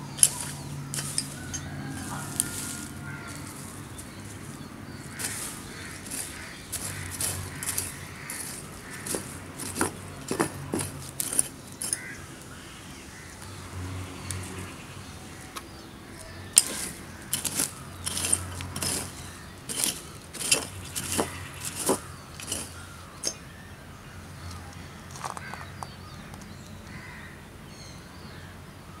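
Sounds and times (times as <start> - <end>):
metal rake clinks: 0.0 - 12.2, 16.5 - 23.5
hand rake scratching soil: 0.0 - 12.5, 16.2 - 23.4.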